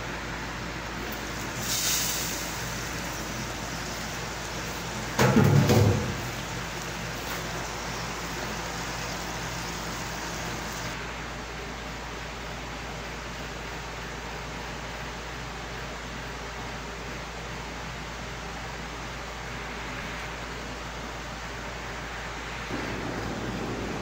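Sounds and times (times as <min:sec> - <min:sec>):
sauce sizzling in a pan: 0:01.0 - 0:11.0.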